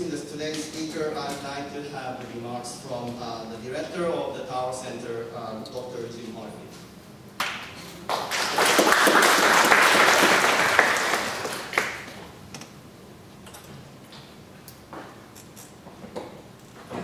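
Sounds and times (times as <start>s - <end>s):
audience applauding: 7.4s - 12.2s.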